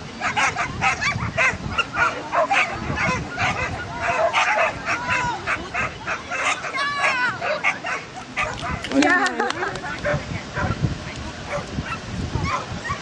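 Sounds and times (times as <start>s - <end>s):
dog barking: 0.2s - 8.8s, 10.0s - 10.8s, 11.5s - 13.0s
dog yelping: 0.2s - 8.8s.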